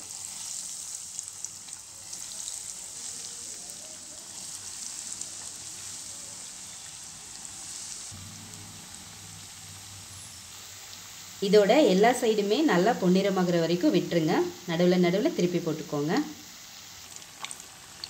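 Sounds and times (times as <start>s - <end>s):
fish sizzling in hot oil: 0.0s - 18.0s
low steady hum: 8.1s - 14.7s.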